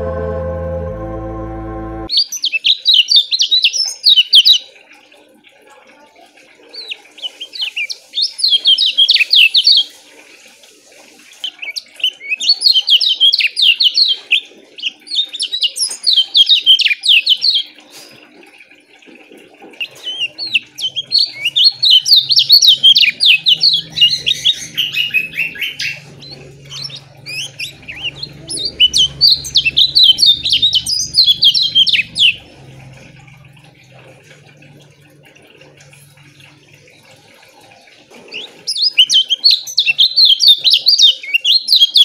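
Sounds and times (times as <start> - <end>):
organ music: 0.0 - 2.1, 23.8 - 33.0
bird chirping: 19.8 - 32.6.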